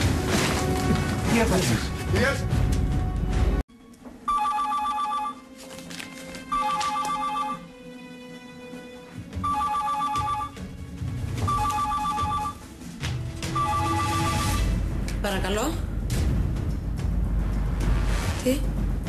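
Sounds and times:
telephone ringing: 0:04.3 - 0:05.5, 0:06.4 - 0:07.8, 0:09.4 - 0:10.7, 0:11.4 - 0:12.6, 0:13.5 - 0:14.7.

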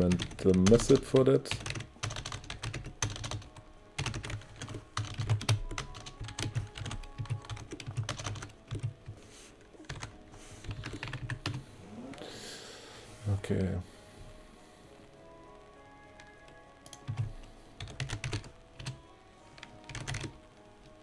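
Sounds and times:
typing on computer keyboard: 0:00.0 - 0:09.2, 0:09.8 - 0:11.6, 0:16.2 - 0:20.4.

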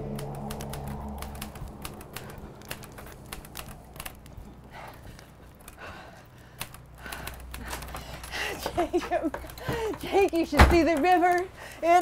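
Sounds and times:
typewriter keys clacking: 0:00.0 - 0:04.4.

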